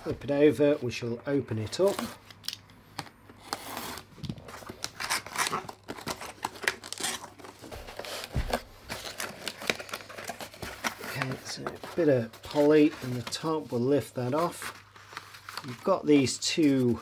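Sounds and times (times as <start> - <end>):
cardboard scraping and tearing: 3.5 - 13.4.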